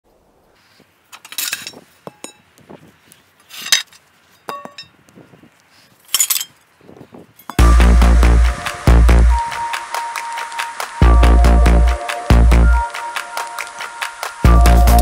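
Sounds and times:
steel pipes clanking and scraping: 1.1s - 2.4s, 3.5s - 4.9s.

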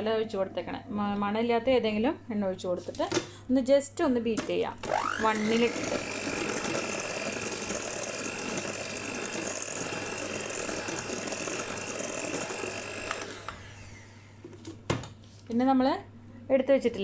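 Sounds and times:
electric hand mixer whining: 4.8s - 14.3s
beaters whisking batter in bowl: 5.3s - 13.5s.

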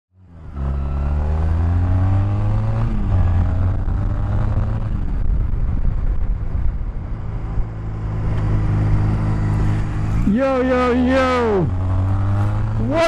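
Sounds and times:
motorcycle engine accelerating: 0.2s - 13.0s
wind noise: 2.2s - 10.2s.

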